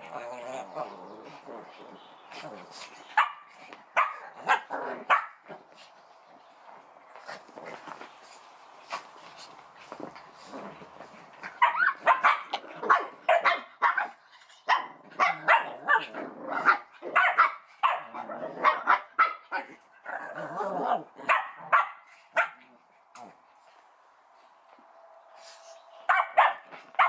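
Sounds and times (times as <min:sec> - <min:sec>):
puppies barking: 0:03.2 - 0:05.5, 0:11.5 - 0:19.5, 0:21.2 - 0:22.6, 0:26.0 - 0:27.0.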